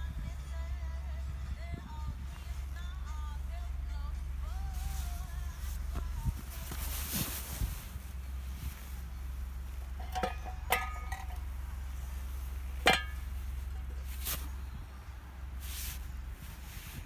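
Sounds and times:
steady low rumble: 0:00.0 - 0:17.0
metal pan clinking: 0:10.0 - 0:11.4, 0:12.8 - 0:13.2.

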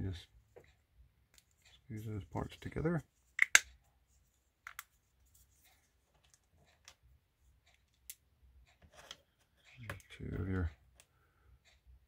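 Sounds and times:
plastic toy parts clicking: 0:03.4 - 0:03.8.

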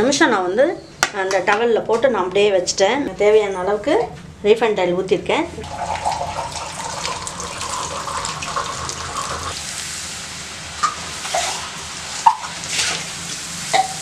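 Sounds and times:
oil bubbling and sizzling: 0:05.6 - 0:14.0.

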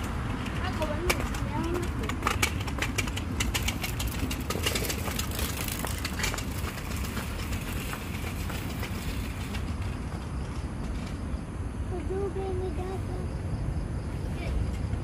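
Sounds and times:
scooter wheels clicking on concrete: 0:00.0 - 0:11.4.

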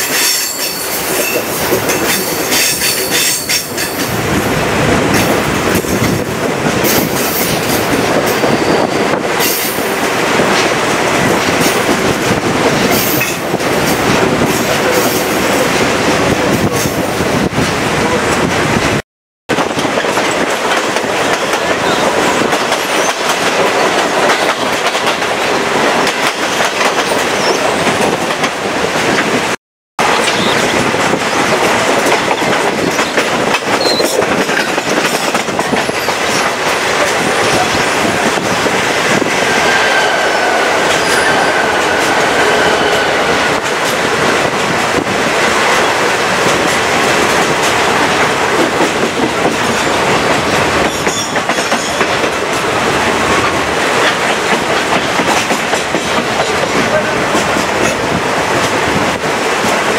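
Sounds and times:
train wheels clacking on rails: 0:00.0 - 0:18.5, 0:19.5 - 0:59.9
high wheel squeal: 0:33.8 - 0:34.2, 0:39.2 - 0:43.6
rushing air: 0:35.4 - 0:50.8.

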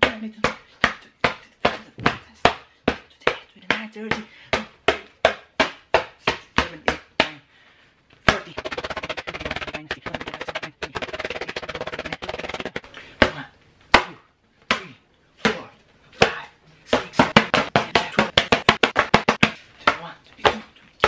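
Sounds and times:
hand slapping paper: 0:08.3 - 0:12.9, 0:16.2 - 0:20.6.

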